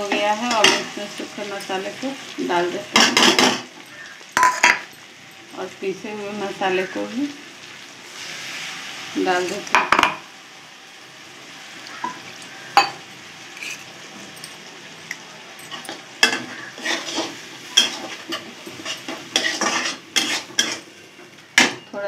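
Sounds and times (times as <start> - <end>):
oil sizzling: 0.0 - 22.0
spatula knocking on pan: 9.7 - 10.2
metal spatula scraping pan: 15.7 - 21.2.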